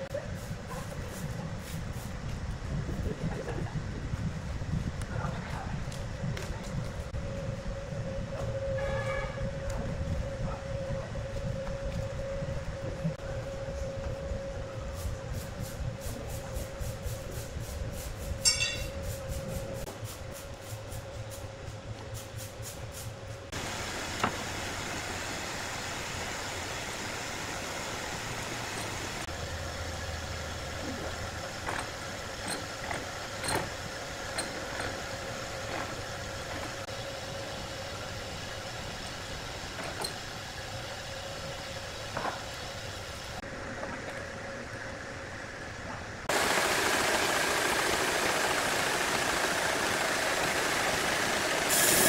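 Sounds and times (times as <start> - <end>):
sawmill machinery humming: 23.5 - 52.0.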